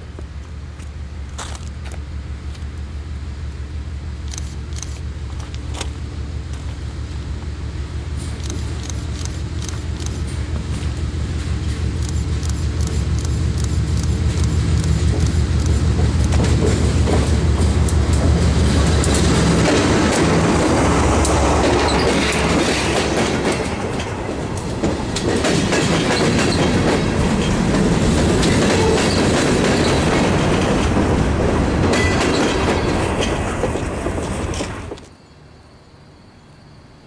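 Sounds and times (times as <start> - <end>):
freight cars rumbling: 0.0 - 35.1
locomotive engine hum: 0.0 - 35.1
wheels clicking over rail joints: 8.1 - 35.1.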